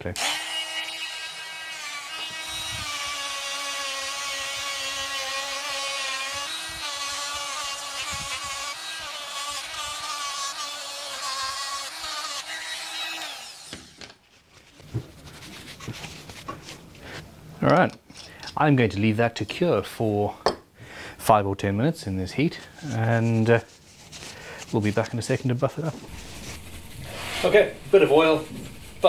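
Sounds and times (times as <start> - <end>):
rotary tool buffing wood: 0.2 - 14.1, 26.0 - 29.0.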